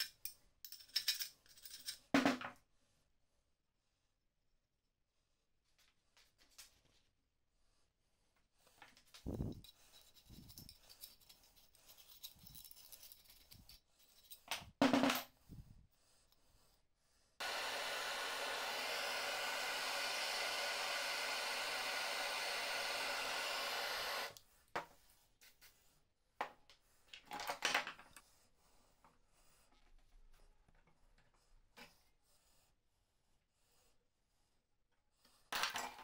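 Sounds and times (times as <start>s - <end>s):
blowtorch flame hissing: 17.4s - 24.4s.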